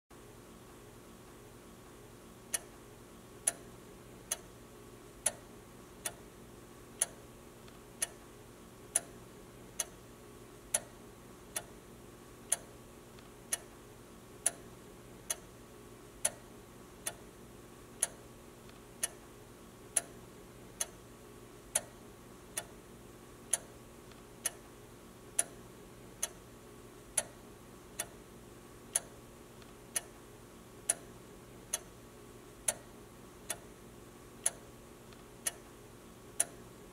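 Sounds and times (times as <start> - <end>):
pendulum clock ticking: 2.5 - 2.8, 3.4 - 4.5, 5.2 - 6.2, 7.0 - 7.2, 8.0 - 8.2, 8.9 - 9.2, 9.8 - 10.0, 10.7 - 11.8, 12.4 - 12.7, 13.5 - 13.7, 14.4 - 14.7, 15.3 - 15.6, 16.2 - 17.2, 18.0 - 18.2, 19.0 - 19.2, 20.0 - 21.0, 21.7 - 22.8, 23.5 - 23.8, 24.4 - 24.7, 25.4 - 25.6, 26.2 - 26.4, 27.2 - 27.4, 28.0 - 28.2, 28.9 - 29.2, 29.9 - 30.2, 30.9 - 31.1, 31.7 - 32.0, 32.6 - 33.7, 34.4 - 34.7, 35.4 - 35.7, 36.4 - 36.7.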